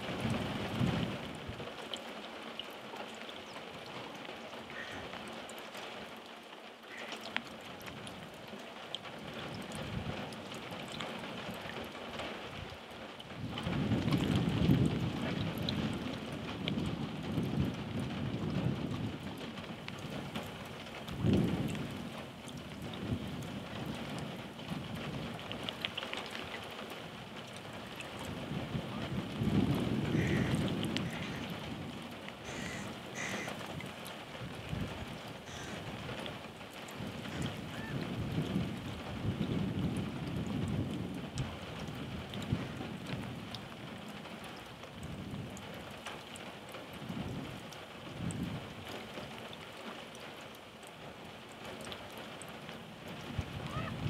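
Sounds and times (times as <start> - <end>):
wind rumble on microphone: 0.0 - 1.8, 7.8 - 50.5, 51.7 - 54.0
rain falling: 0.0 - 54.0
single raindrop ticks: 6.9 - 12.3, 18.4 - 28.4.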